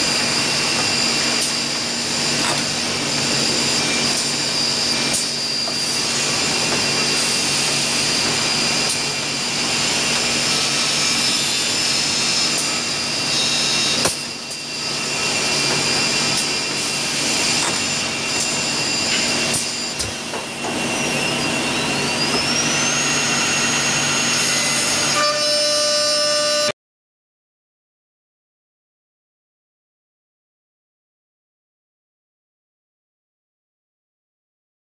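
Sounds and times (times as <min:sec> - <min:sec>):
drilling machine running: 0:00.0 - 0:25.2
high-pitched spindle whine: 0:00.0 - 0:26.8.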